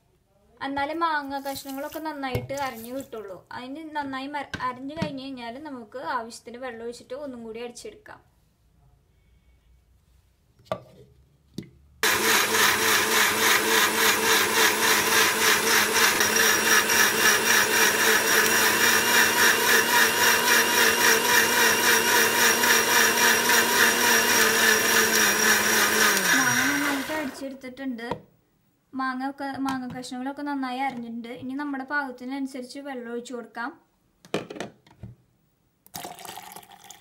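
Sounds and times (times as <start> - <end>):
mixer grinder running: 12.0 - 27.5.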